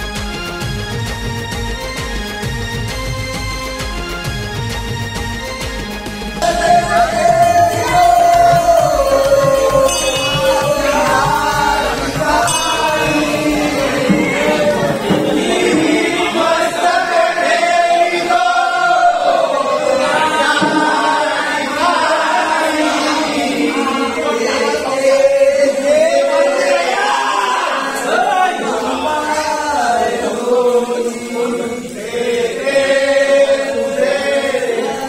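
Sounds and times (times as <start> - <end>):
low steady beat: 6.4 - 16.7, 20.6 - 22.1
men singing together: 6.4 - 35.0.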